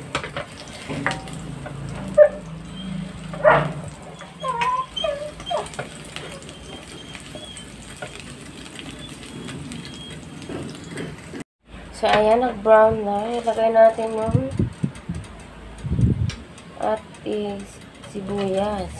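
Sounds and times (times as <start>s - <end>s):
garlic sizzling in oil: 0.0s - 11.4s
spatula stirring in wok: 0.0s - 11.4s.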